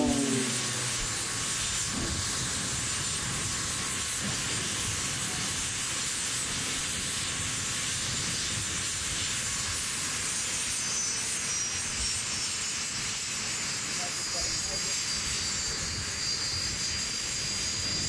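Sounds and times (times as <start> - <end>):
high whine falling in pitch: 0.0 - 1.5
jet engines hissing: 0.0 - 10.2.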